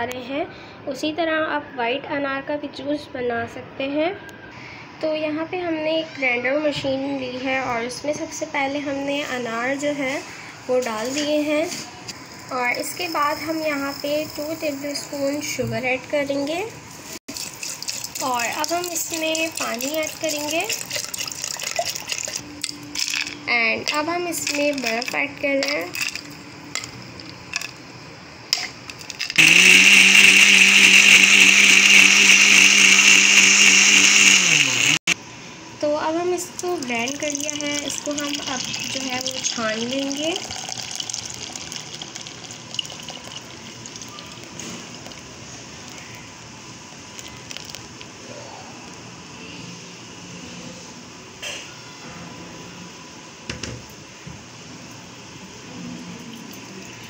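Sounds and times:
juice draining through strainer: 17.3s - 22.4s, 36.8s - 46.1s, 47.1s - 48.0s
electric mixer grinder running: 29.2s - 35.2s.

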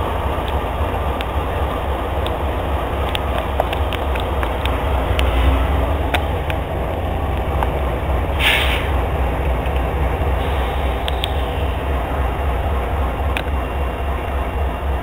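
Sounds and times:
freight train rumbling: 0.0s - 15.0s
wheels clicking on rail: 0.0s - 15.0s
brief hiss: 8.4s - 9.0s.

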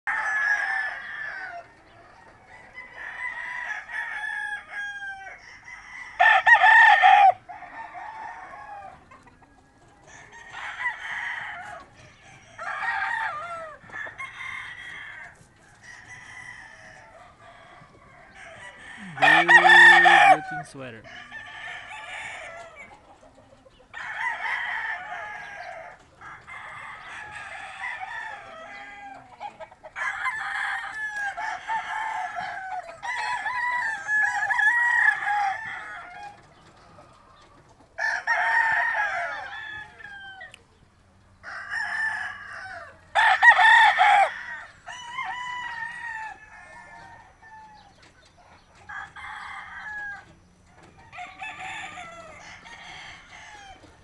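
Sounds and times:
roosters crowing: 0.1s - 54.0s.

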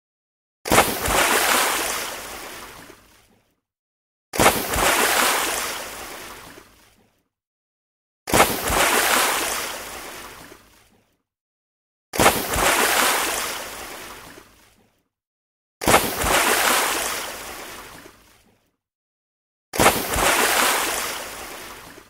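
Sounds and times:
object splashing into water: 0.7s - 3.4s, 4.4s - 7.2s, 8.3s - 11.1s, 12.2s - 14.9s, 15.8s - 18.6s, 19.8s - 22.0s.

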